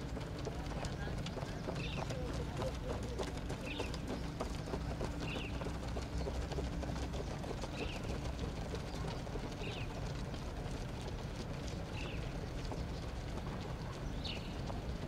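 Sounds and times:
bird calling: 0.9 - 6.4.

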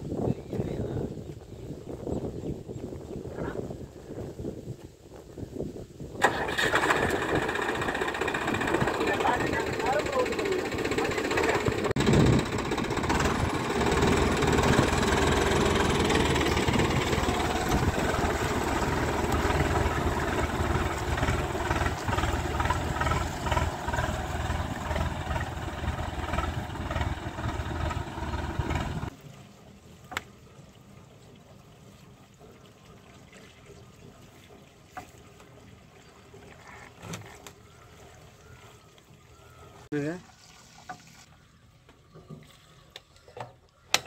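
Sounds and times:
tractor diesel engine running: 6.2 - 29.1.

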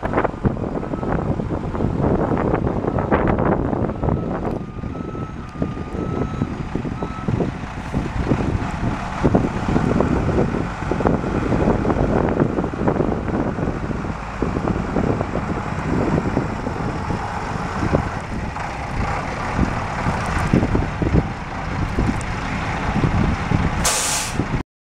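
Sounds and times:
diesel truck engine running: 0.0 - 24.6
wind on microphone: 0.0 - 24.6.

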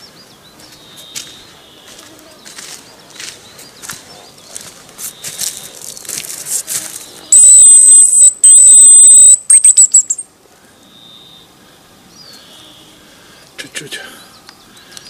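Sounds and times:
footsteps: 0.6 - 7.3
high whistling tone: 7.3 - 10.2
short falling chirps: 7.4 - 10.2.

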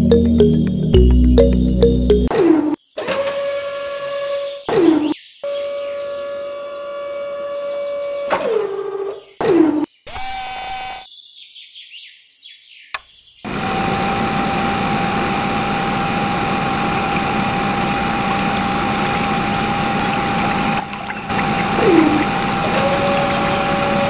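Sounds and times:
small electric pump motor whine: 5.5 - 8.3, 13.5 - 24.0
water pumping through pipe: 16.8 - 24.0.

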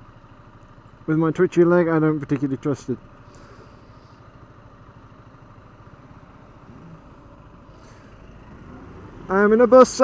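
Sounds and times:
motorcycle engine idling: 0.0 - 10.0
traffic noise: 0.0 - 10.0.

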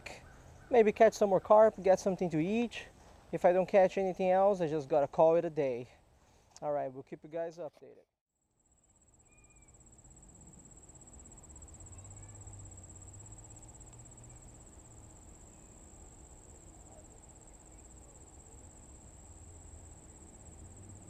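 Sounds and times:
insect trilling: 8.7 - 21.0.

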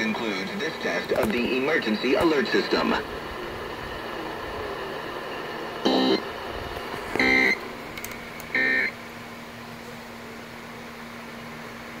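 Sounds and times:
radio hiss: 0.0 - 12.0
short data bursts: 7.1 - 9.0.

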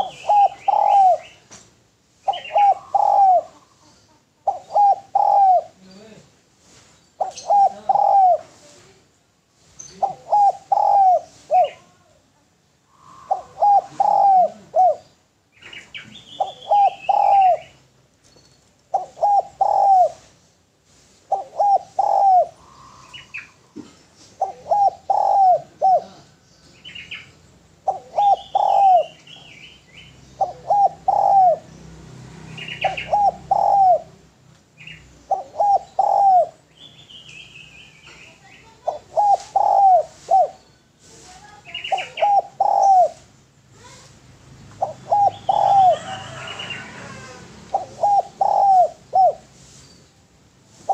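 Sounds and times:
dove cooing: 0.0 - 1.4, 2.2 - 5.9, 7.2 - 8.6, 9.9 - 12.0, 12.9 - 17.8, 18.9 - 20.3, 21.3 - 26.4, 27.1 - 29.6, 30.4 - 31.7, 32.6 - 36.7, 38.6 - 40.6, 41.4 - 49.8
small birds chirping: 0.0 - 50.9.

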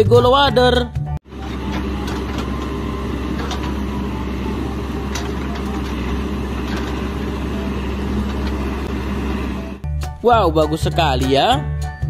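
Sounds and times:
diesel engine running: 1.2 - 9.9.

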